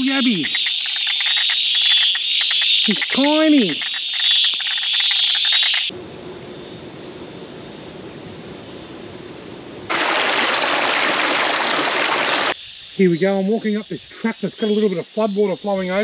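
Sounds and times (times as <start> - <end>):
frogs calling in pulsed trills: 0.0 - 5.9, 12.6 - 16.0
floodwater rushing: 9.9 - 12.6.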